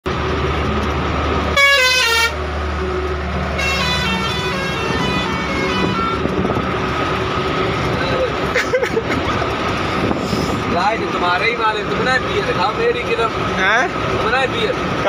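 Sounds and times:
diesel engine drone: 0:00.0 - 0:15.0
truck musical horn: 0:01.5 - 0:06.8.

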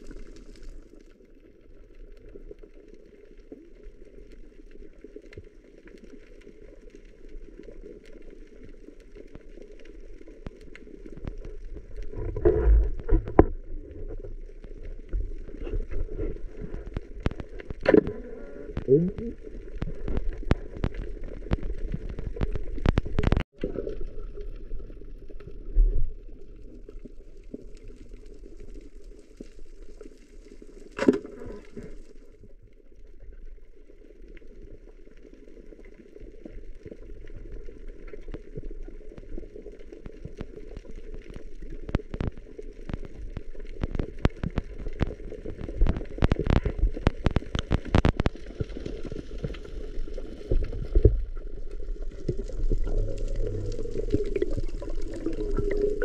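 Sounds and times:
sharp clicks and crackles: 0:00.0 - 0:56.0
muffled underwater hum: 0:11.8 - 0:23.4, 0:51.0 - 0:56.0.

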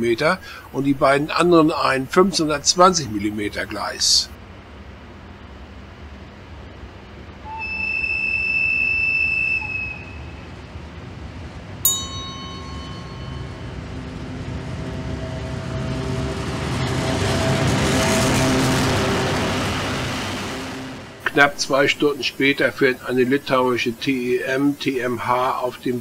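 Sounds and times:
diesel locomotive engine: 0:00.0 - 0:26.0
locomotive horn blast: 0:07.4 - 0:10.8
sharp ringing clank: 0:11.9 - 0:14.3.

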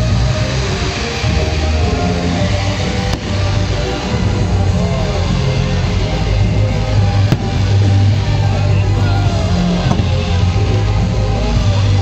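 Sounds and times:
loud music with heavy bass: 0:00.0 - 0:12.0
firework bang: 0:02.8 - 0:04.3, 0:07.1 - 0:08.4, 0:09.7 - 0:10.6.

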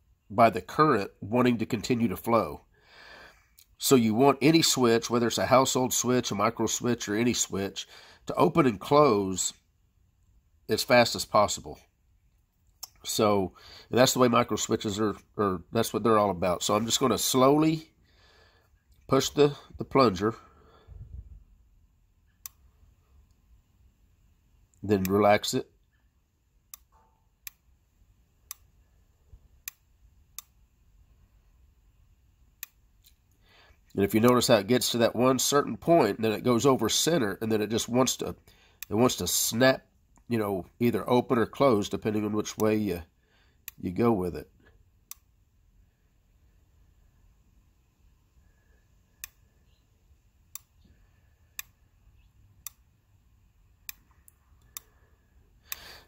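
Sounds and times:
microswitch clicking: 0:22.4 - 0:22.6, 0:49.2 - 0:49.4, 0:50.5 - 0:50.9.

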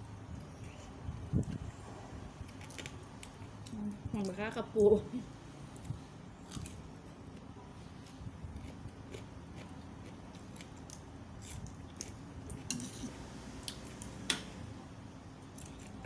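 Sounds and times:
person chewing food: 0:08.0 - 0:12.7.

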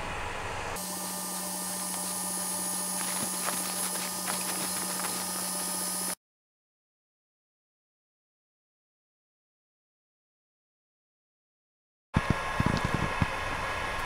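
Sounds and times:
printer hum and fan hiss: 0:00.0 - 0:06.2, 0:12.2 - 0:14.0.

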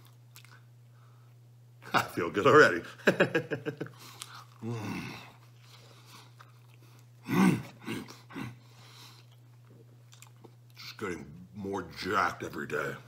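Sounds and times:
man chewing pizza: 0:00.0 - 0:01.5, 0:03.6 - 0:11.7.

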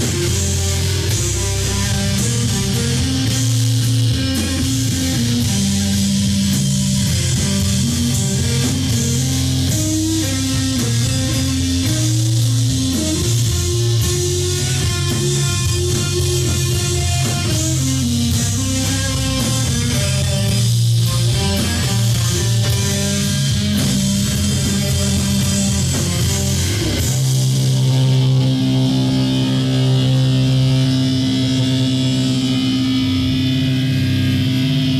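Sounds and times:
distorted electric guitars: 0:00.0 - 0:34.9
drums: 0:00.0 - 0:34.9.

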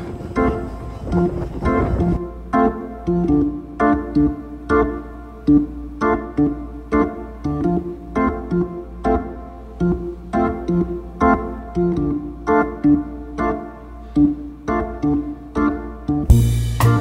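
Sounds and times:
keyboard playing chords: 0:00.0 - 0:17.0
heavy bass and drums: 0:16.2 - 0:17.0.

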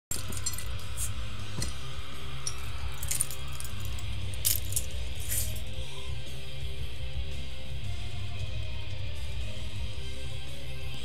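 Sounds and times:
small metal objects clinking: 0:00.1 - 0:05.6.

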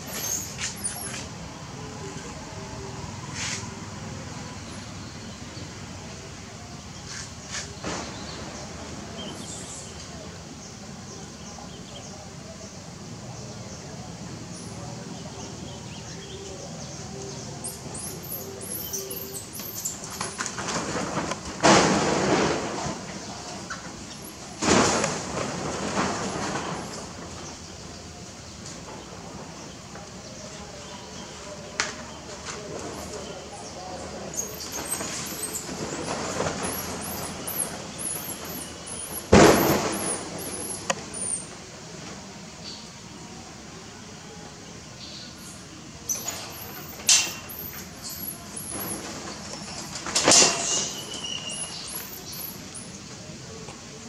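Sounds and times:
sudden loud thump: 0:39.3 - 0:40.8.

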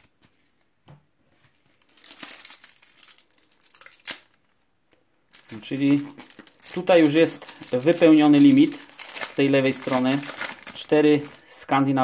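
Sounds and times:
foil wrapper crinkling and tearing: 0:01.8 - 0:04.5, 0:05.3 - 0:11.6
foil wrapper snapping: 0:02.0 - 0:04.4.

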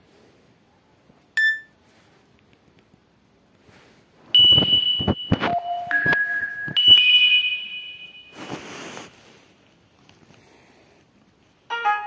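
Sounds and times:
electronic alert tone: 0:04.4 - 0:07.1.

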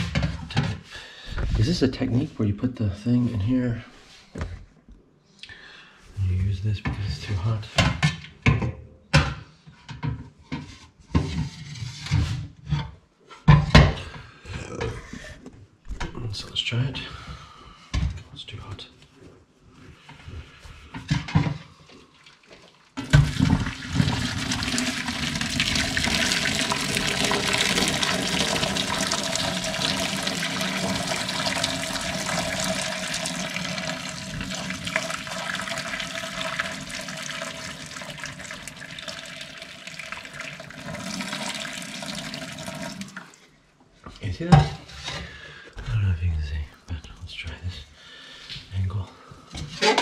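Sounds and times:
water pouring into a sink: 0:21.9 - 0:43.5.

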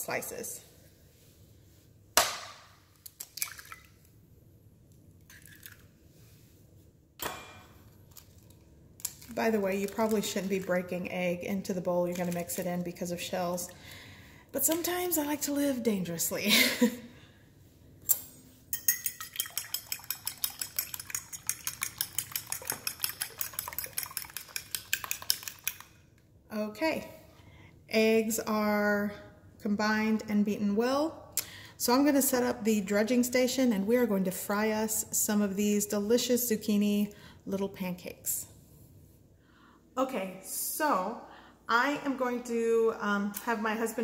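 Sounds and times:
egg cracking on bowl rim: 0:18.9 - 0:26.0.

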